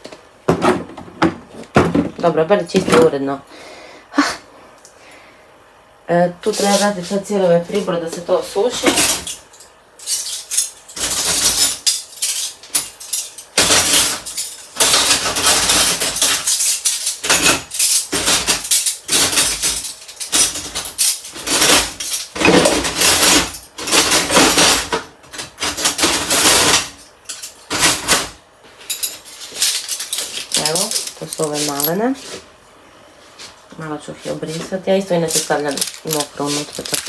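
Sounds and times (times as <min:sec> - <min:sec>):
metal cutlery clattering: 0:08.8 - 0:32.0, 0:35.2 - 0:37.0.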